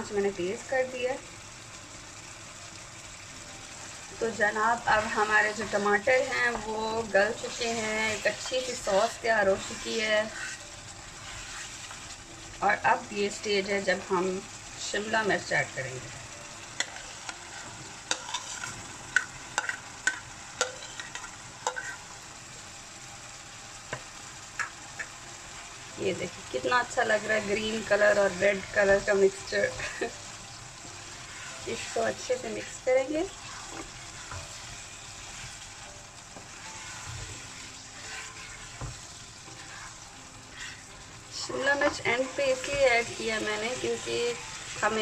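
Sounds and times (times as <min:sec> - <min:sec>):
low sizzle from pan: 0:00.0 - 0:45.0
spatula scraping a wok: 0:04.8 - 0:12.2, 0:16.8 - 0:22.2, 0:31.0 - 0:35.8, 0:36.5 - 0:45.0
spoon scraping plate and pan: 0:07.5 - 0:12.0, 0:16.8 - 0:22.1.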